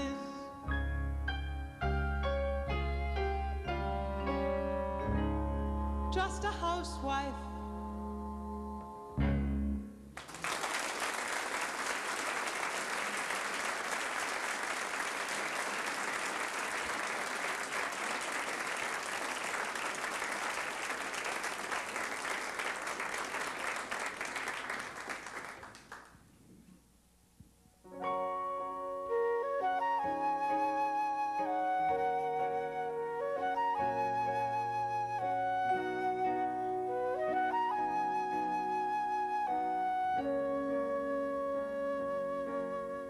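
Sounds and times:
piano chord ringing: 0:00.1 - 0:06.8
flute playing: 0:02.2 - 0:09.2, 0:27.9 - 0:43.0
audience applauding: 0:10.1 - 0:26.2.

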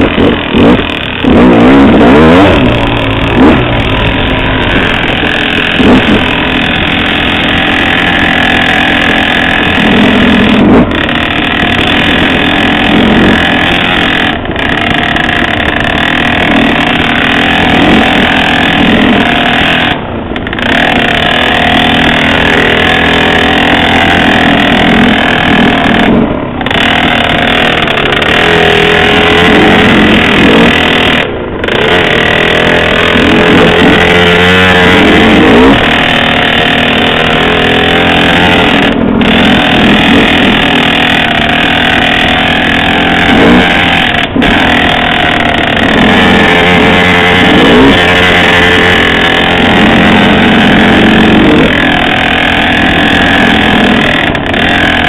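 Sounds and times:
dirt bike engine under throttle: 0:00.0 - 0:55.0.

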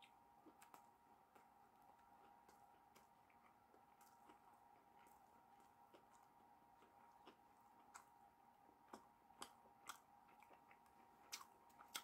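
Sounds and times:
faint steady hum: 0:00.0 - 0:12.0
chewing mouth clicks: 0:08.9 - 0:12.0.

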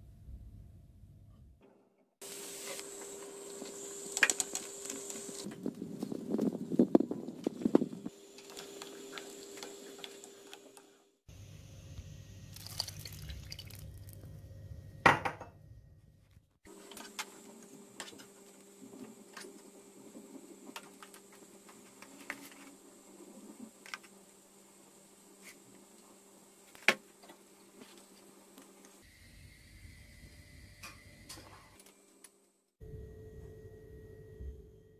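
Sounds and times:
water pouring into pot: 0:12.5 - 0:14.3
faint steady hum: 0:16.8 - 0:34.9.

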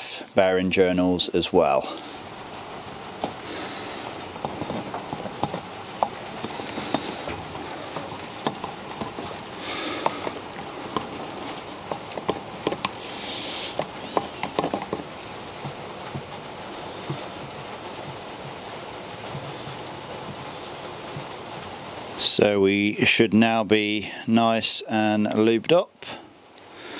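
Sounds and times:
brief rustling hisses: 0:13.0 - 0:14.8.

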